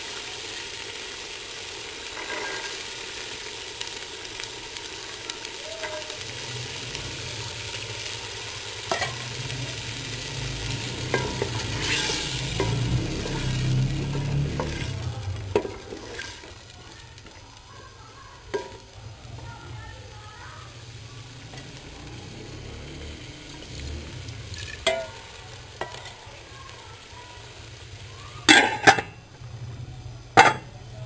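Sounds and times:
faint sizzle: 0.0s - 31.0s.

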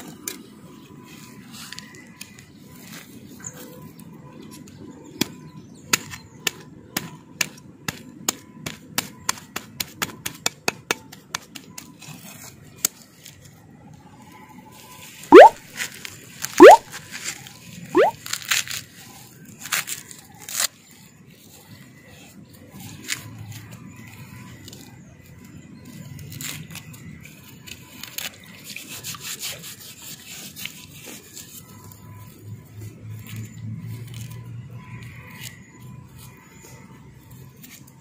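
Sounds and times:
husk fibres ripping: 18.2s - 21.0s.

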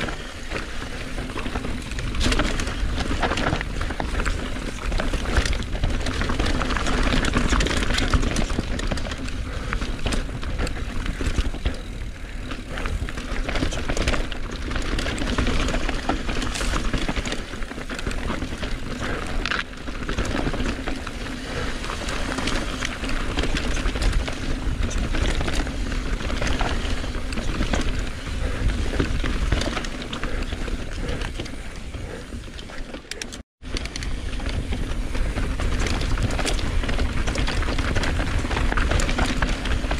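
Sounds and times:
bike rattles and knocks: 0.0s - 39.9s
tyre and wind rumble: 0.0s - 39.9s.

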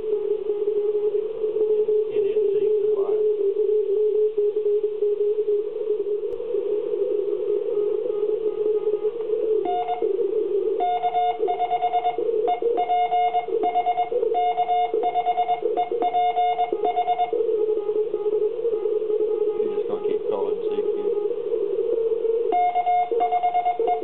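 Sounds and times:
receiver band noise hiss: 0.0s - 24.0s
morse code beeping: 8.1s - 10.2s, 10.8s - 21.4s, 22.5s - 24.0s.

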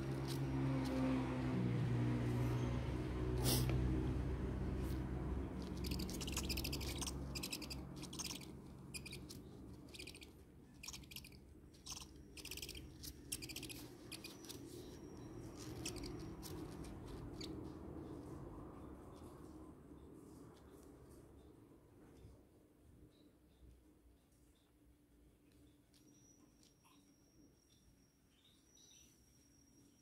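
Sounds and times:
owl chicks hissing calls: 3.4s - 3.8s, 5.6s - 15.0s, 15.6s - 16.6s.

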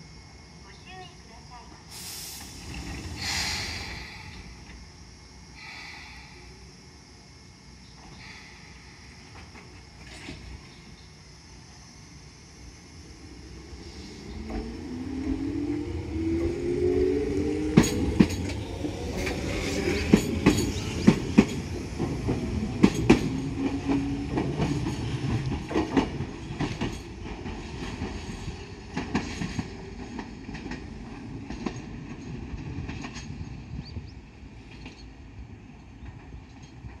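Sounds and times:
electric train motor whine: 0.0s - 34.2s
train wheels clacking over rail joints: 17.7s - 28.3s, 28.9s - 33.5s.

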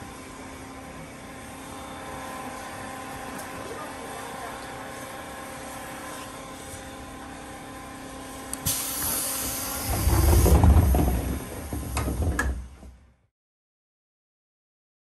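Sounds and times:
standing train hum: 0.0s - 13.3s
compressed air hiss: 8.6s - 10.4s
sliding door rumbling shut: 8.7s - 13.2s.

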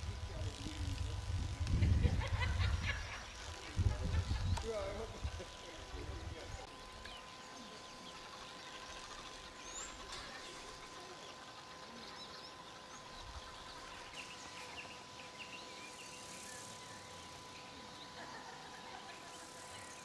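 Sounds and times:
bird chirps: 7.0s - 18.2s.

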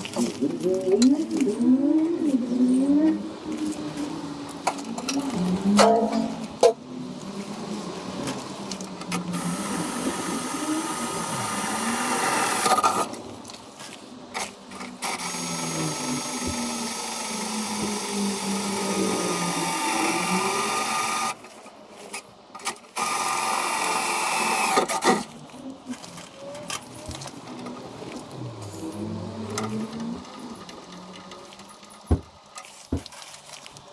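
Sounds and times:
power drill whining: 9.3s - 13.1s, 15.0s - 21.4s, 23.0s - 25.2s.

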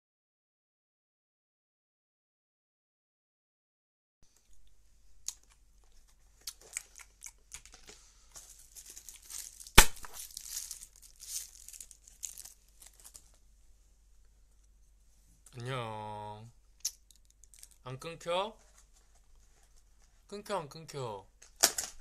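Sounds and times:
packaging tearing and crinkling: 8.5s - 13.4s, 17.3s - 17.8s
sharp crack: 9.7s - 10.3s.

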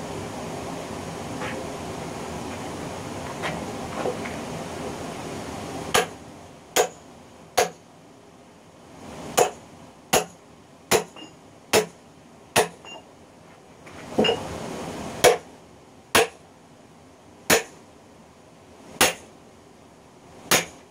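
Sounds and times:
hammer striking steel wedge: 5.9s - 6.1s, 6.8s - 7.0s, 7.6s - 7.8s, 9.4s - 12.0s, 12.6s - 13.0s, 16.2s - 16.4s, 17.5s - 17.8s, 19.0s - 19.2s, 20.5s - 20.8s.

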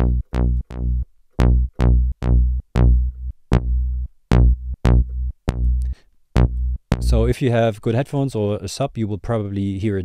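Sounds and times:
synthesizer bass line: 0.0s - 7.4s.

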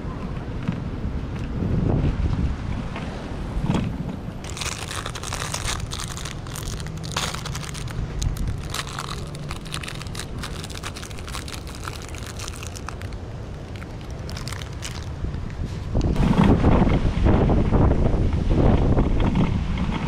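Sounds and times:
low wind rumble: 0.0s - 20.0s
plastic wrapper crinkling: 4.4s - 16.2s.

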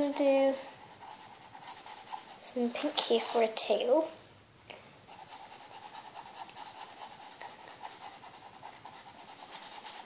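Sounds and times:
felt-tip pen colouring on paper: 0.0s - 2.4s, 5.1s - 10.0s.

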